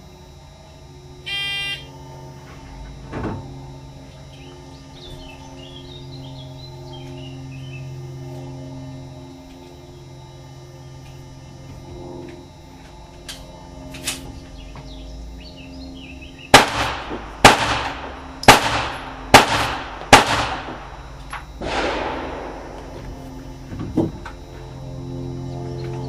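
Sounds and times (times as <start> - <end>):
pistol shots ringing indoors: 16.5 - 20.9, 21.6 - 22.8.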